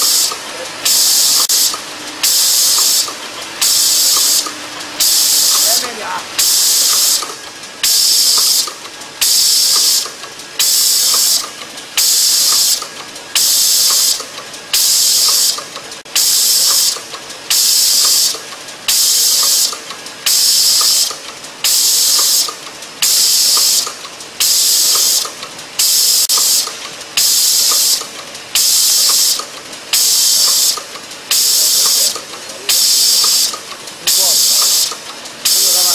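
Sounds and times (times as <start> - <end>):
compressed air hiss: 0.0 - 5.7, 6.4 - 12.8, 16.2 - 19.7, 20.3 - 25.2, 25.8 - 28.0, 28.6 - 35.9
light mechanical clicking: 18.0 - 24.3, 29.1 - 35.5.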